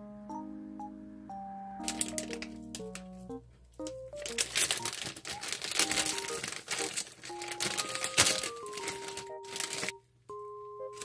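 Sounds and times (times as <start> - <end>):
plastic bag crinkling: 1.8 - 10.0.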